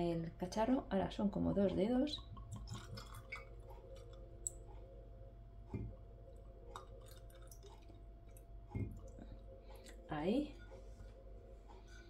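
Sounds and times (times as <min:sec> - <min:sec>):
liquid pouring into glass: 0:02.2 - 0:04.2.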